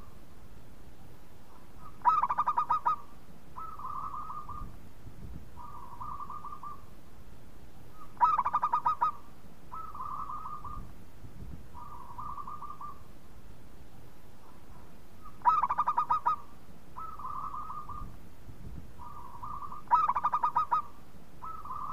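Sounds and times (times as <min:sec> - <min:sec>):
dove cooing: 0:01.5 - 0:04.8, 0:05.6 - 0:06.9, 0:07.9 - 0:10.9, 0:11.7 - 0:13.1, 0:14.4 - 0:18.1, 0:19.0 - 0:21.9.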